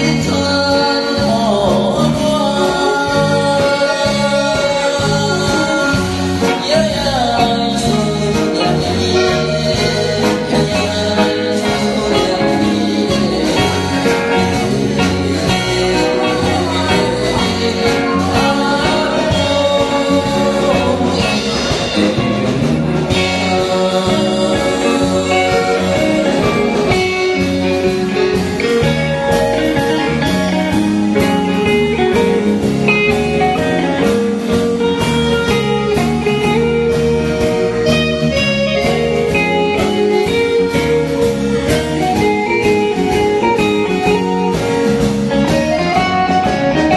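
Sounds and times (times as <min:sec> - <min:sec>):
man singing into a microphone: 0:00.0 - 0:29.0
drum kit beat: 0:00.0 - 0:46.9
keyboards: 0:00.0 - 0:46.9
live band playing: 0:00.0 - 0:46.9.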